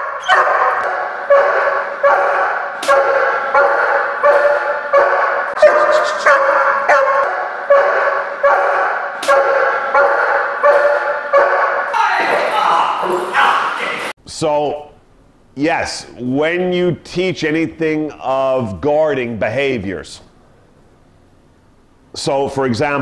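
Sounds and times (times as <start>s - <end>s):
dog barking: 0.0s - 11.9s.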